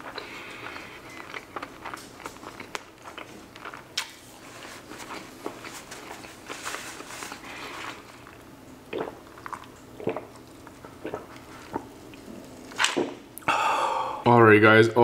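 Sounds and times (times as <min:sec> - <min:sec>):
drinking from a mug: 0:07.4 - 0:14.2
swallowing: 0:07.4 - 0:14.2.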